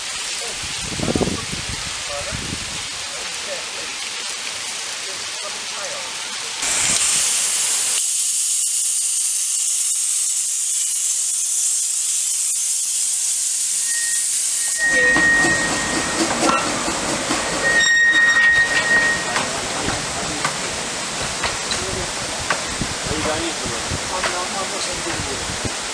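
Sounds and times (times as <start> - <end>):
steam locomotive hissing: 6.6 - 25.9
short high tone: 13.9 - 16.6
locomotive rumbling running noise: 14.7 - 25.7.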